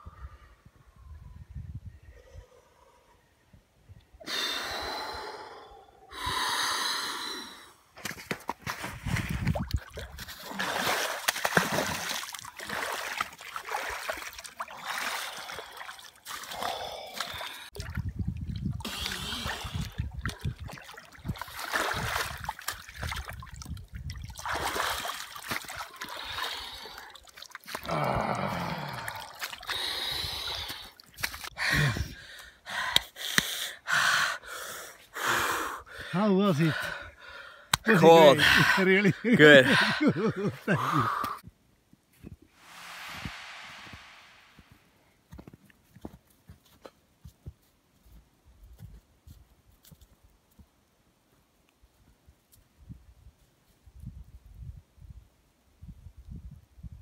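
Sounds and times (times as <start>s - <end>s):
water splashing and sloshing: 8.0s - 27.9s, 28.9s - 31.5s
people gasping and breathing hard: 27.8s - 36.1s, 39.6s - 41.4s.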